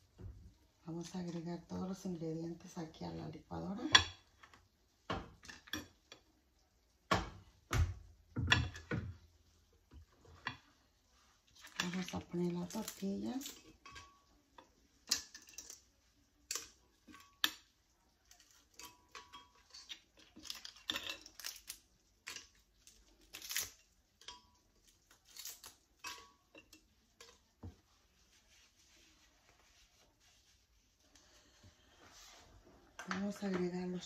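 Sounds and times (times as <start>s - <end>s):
tortilla tearing crackles: 19.7s - 23.9s, 24.8s - 26.0s.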